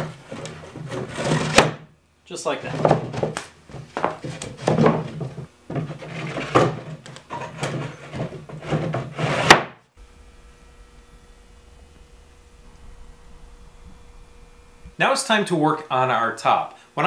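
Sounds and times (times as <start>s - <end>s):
plywood panels knocking and scraping: 0.0s - 1.8s, 2.7s - 9.8s
faint steady hum: 0.0s - 9.1s, 9.8s - 17.0s.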